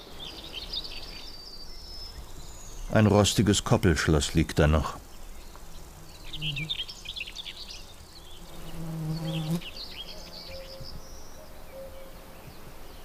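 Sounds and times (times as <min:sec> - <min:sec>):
small birds chirping: 0:00.0 - 0:13.0
flying insect buzzing: 0:05.0 - 0:10.4.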